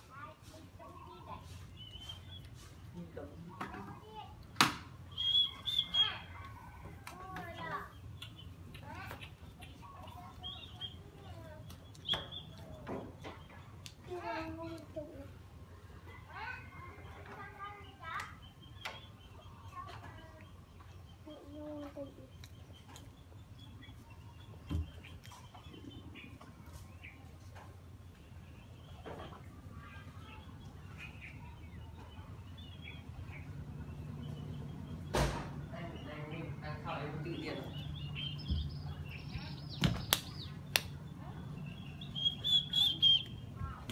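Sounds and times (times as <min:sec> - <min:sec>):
low outdoor rumble: 0:00.1 - 0:43.9
bird chirping: 0:00.2 - 0:04.3, 0:05.0 - 0:06.8, 0:07.5 - 0:14.4, 0:17.0 - 0:43.9
high wavering bird call: 0:05.1 - 0:06.3, 0:42.1 - 0:43.4
faint bird chirps: 0:05.1 - 0:06.8.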